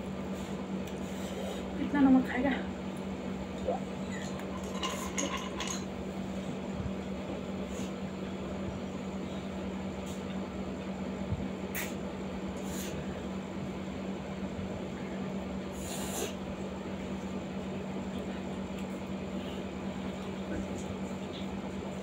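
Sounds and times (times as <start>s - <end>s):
air conditioner humming: 0.0s - 22.0s.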